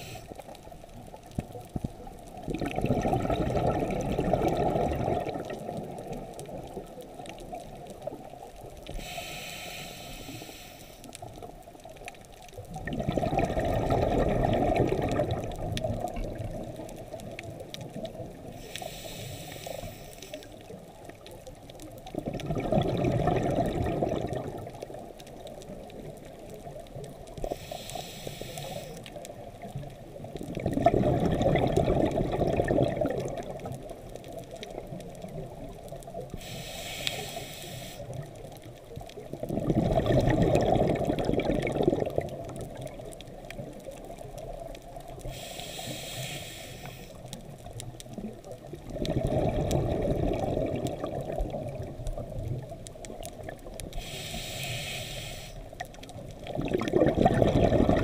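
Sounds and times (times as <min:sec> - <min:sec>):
regulator hissing inhale: 0:00.0 - 0:00.5, 0:08.9 - 0:11.1, 0:18.6 - 0:20.7, 0:27.4 - 0:29.2, 0:36.3 - 0:38.3, 0:45.2 - 0:47.4, 0:54.0 - 0:55.8
exhaled bubbles underwater: 0:00.0 - 0:09.1, 0:11.0 - 0:19.0, 0:20.2 - 0:58.0.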